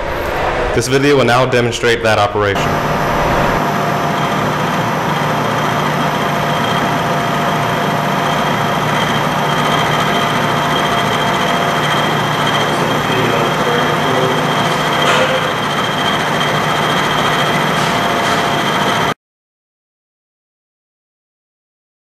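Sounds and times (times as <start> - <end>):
milling machine cutting metal: 2.6 - 19.1.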